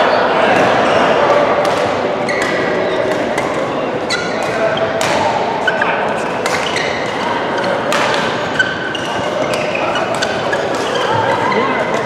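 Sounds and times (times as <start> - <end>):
court shoes squeaking: 0.0 - 12.0
murmur of voices: 0.0 - 12.0
racket hitting shuttlecock: 1.6 - 3.6, 4.2 - 5.5, 6.4 - 11.3.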